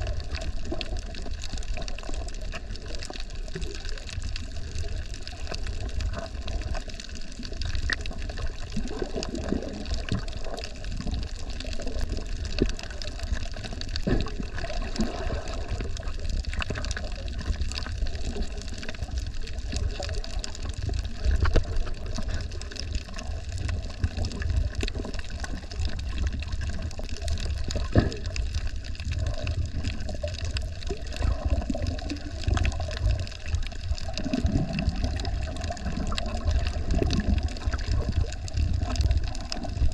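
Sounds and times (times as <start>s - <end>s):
underwater water sloshing: 0.0s - 39.9s.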